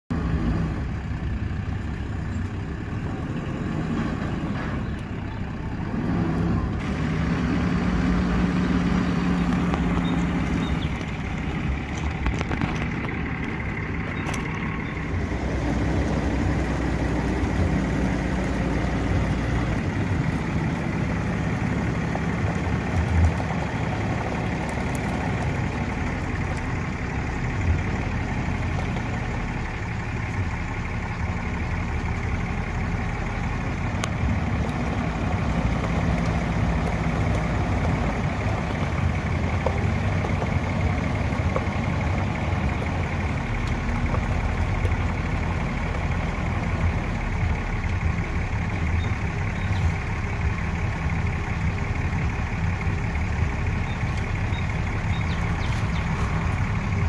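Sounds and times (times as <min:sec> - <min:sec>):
engine idling: 0:00.1 - 0:57.0.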